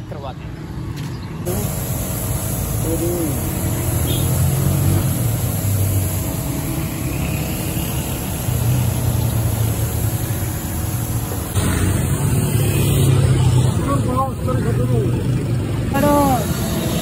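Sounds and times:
paint spray gun hissing: 0:01.5 - 0:13.2, 0:16.0 - 0:17.0.

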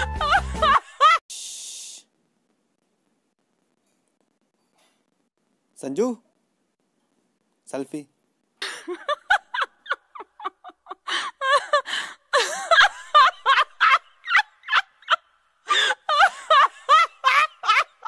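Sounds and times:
man laughing hard: 0:00.0 - 0:01.2, 0:08.6 - 0:15.2, 0:15.8 - 0:18.0.

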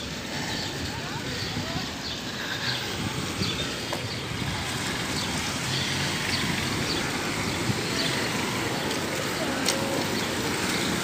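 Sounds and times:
motorcycles passing: 0:00.0 - 0:11.0
passing cars: 0:00.0 - 0:11.0
wind on microphone: 0:00.5 - 0:08.8.

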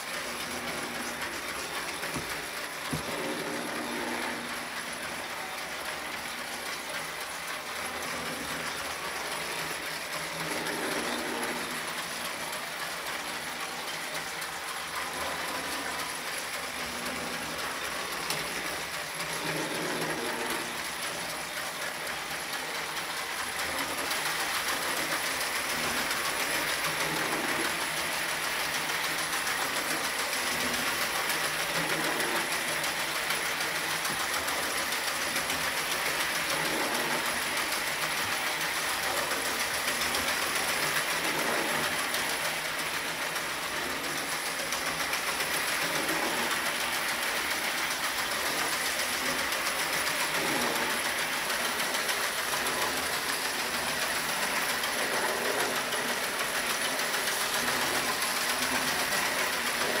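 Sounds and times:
toy train motor whirring: 0:00.0 - 1:00.0
toy train wheels clattering: 0:00.0 - 1:00.0.

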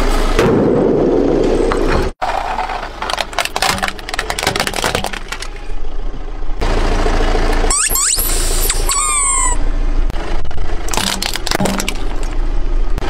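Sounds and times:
tyre crushing brittle objects: 0:02.2 - 0:05.6, 0:10.9 - 0:12.3.

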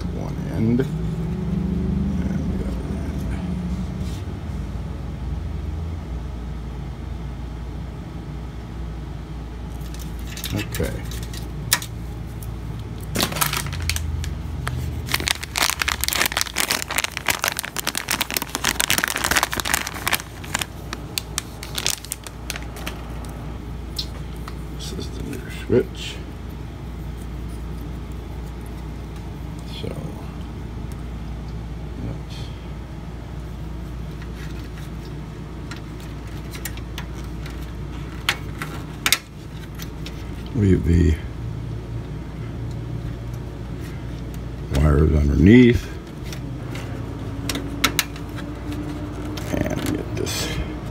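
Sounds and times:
steady low hum: 0:00.0 - 0:50.9
plastic bag crinkling: 0:09.7 - 0:23.4.

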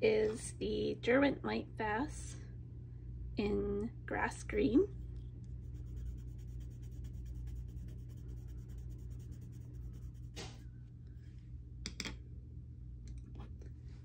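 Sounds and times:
low steady hum: 0:00.0 - 0:14.0
pencil scribbling on paper: 0:05.6 - 0:10.6.

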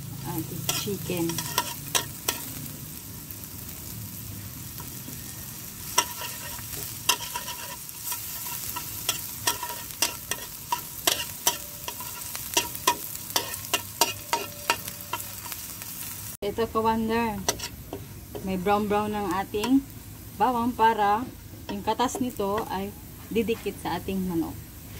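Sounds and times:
garlic sizzling in hot oil: 0:00.0 - 0:24.9
metal spatula scraping a pan: 0:00.6 - 0:02.6, 0:05.8 - 0:15.7, 0:17.4 - 0:18.0.

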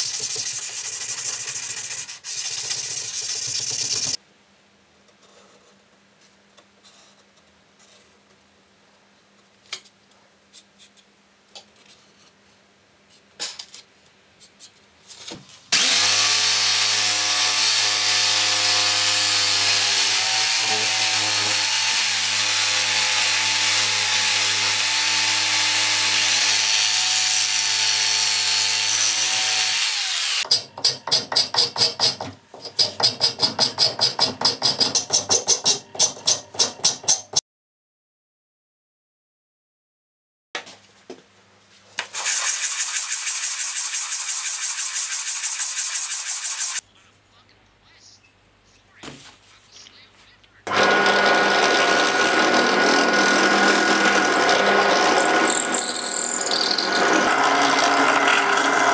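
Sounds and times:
electric jigsaw cutting wood: 0:15.7 - 0:30.5, 0:42.1 - 0:46.8, 0:50.7 - 0:58.9.

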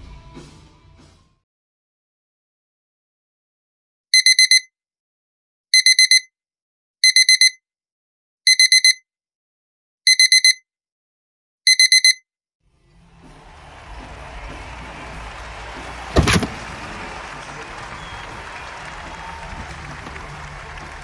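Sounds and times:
alarm clock beeping: 0:04.2 - 0:04.7, 0:05.8 - 0:06.3, 0:07.0 - 0:07.6, 0:08.5 - 0:09.0, 0:10.1 - 0:10.6, 0:11.7 - 0:12.2.

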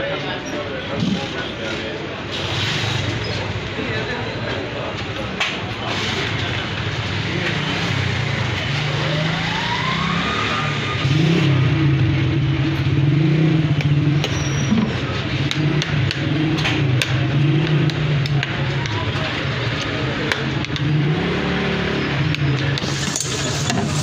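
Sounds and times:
vehicle engine running: 0:05.7 - 0:24.0
rising tone: 0:09.0 - 0:11.2.

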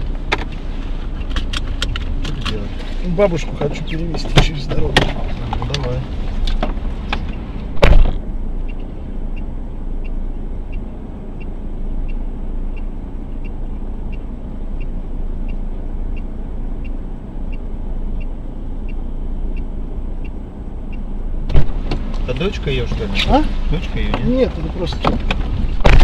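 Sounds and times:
car engine idling: 0:00.0 - 0:26.0
loud thump: 0:07.7 - 0:08.3, 0:21.5 - 0:22.1, 0:25.0 - 0:26.0
car indicator ticking: 0:08.2 - 0:22.6.

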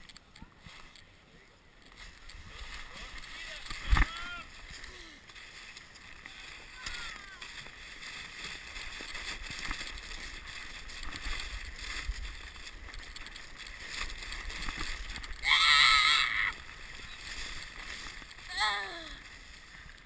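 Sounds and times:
sled sliding over packed snow: 0:00.0 - 0:20.0
loud high-pitched yell: 0:15.4 - 0:16.6, 0:18.5 - 0:19.2.

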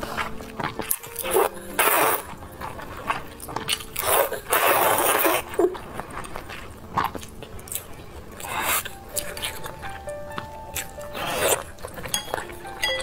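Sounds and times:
mouth clicks and chewing: 0:00.0 - 0:13.0
person slurping noodles: 0:01.0 - 0:07.3, 0:08.4 - 0:09.6, 0:11.0 - 0:11.9.

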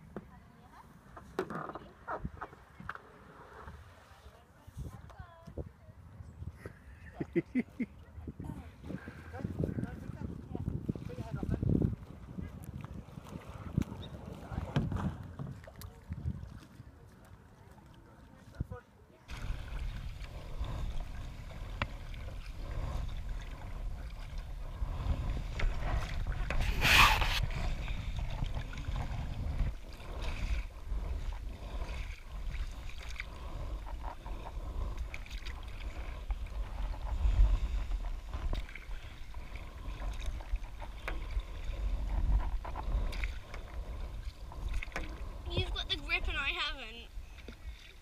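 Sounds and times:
paddle strokes: 0:00.0 - 0:05.7, 0:06.6 - 0:48.0
wind rumble on microphone: 0:00.0 - 0:47.7
water lapping: 0:00.0 - 0:48.0
splash: 0:19.3 - 0:46.5.

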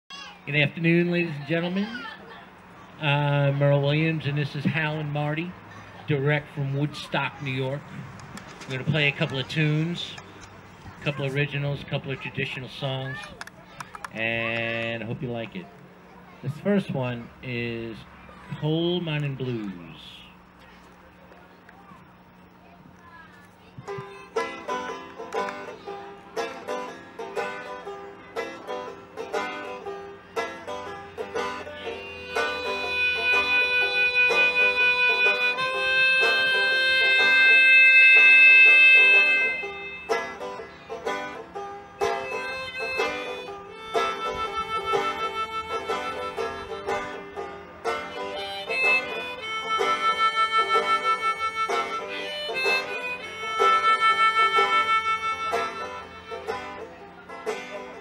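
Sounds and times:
banjo picking: 0:00.4 - 0:07.9, 0:08.6 - 0:10.4, 0:11.0 - 0:15.7, 0:16.5 - 0:18.7, 0:23.6 - 0:58.0
harmonica: 0:23.8 - 0:58.0.

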